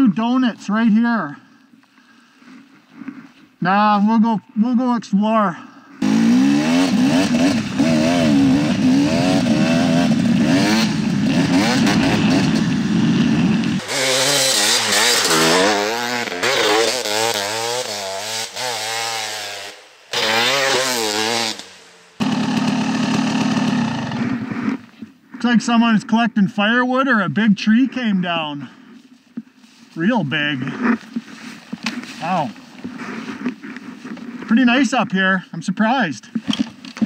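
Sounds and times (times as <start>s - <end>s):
dirt bike engine revving: 6.0s - 25.0s.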